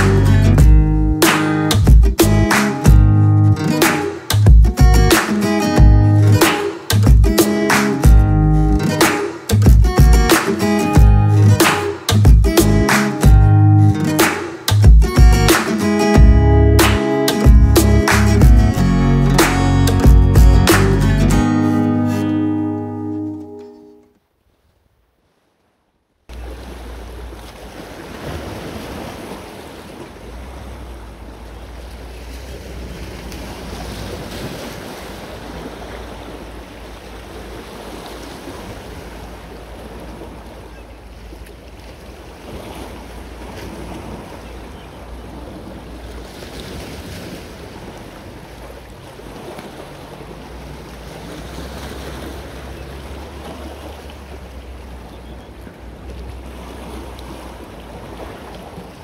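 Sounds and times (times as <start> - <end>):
sea surf washing on shore: 0.0 - 24.0, 26.3 - 59.0.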